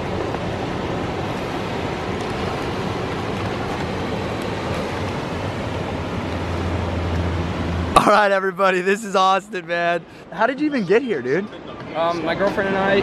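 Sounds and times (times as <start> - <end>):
ocean surf breaking on rocks: 0.0 - 10.3.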